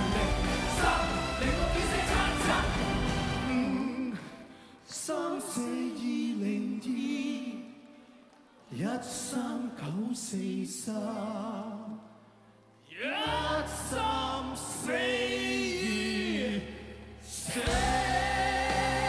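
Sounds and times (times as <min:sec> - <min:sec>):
band playing: 0:00.0 - 0:04.2, 0:17.5 - 0:19.0
two men singing a duet: 0:00.0 - 0:07.9, 0:08.7 - 0:12.1, 0:12.9 - 0:19.0.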